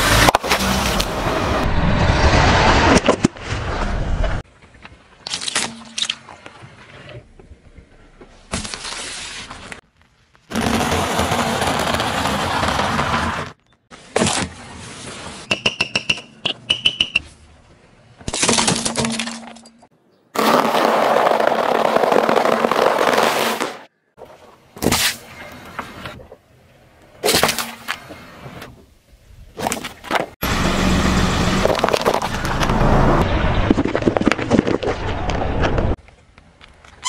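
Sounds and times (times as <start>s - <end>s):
car tyre crushing brittle objects: 8.3s - 13.6s, 20.4s - 23.8s, 31.6s - 35.8s.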